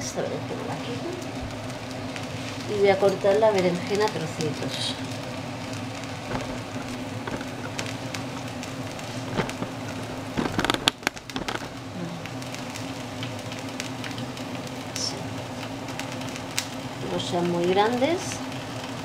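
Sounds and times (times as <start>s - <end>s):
onion sizzling in oil: 0.0s - 19.0s
knocks and rattles: 6.2s - 7.9s.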